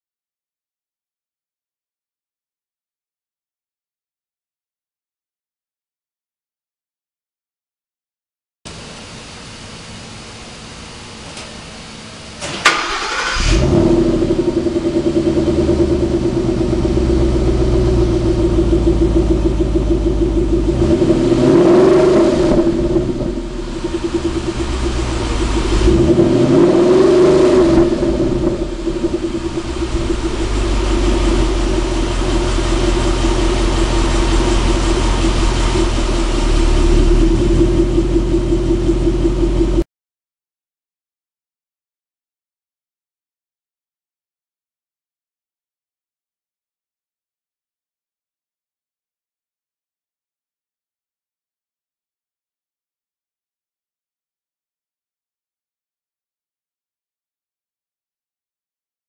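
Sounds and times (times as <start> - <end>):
car engine idling and revving: 8.7 - 39.8
car engine starting: 8.7 - 39.8.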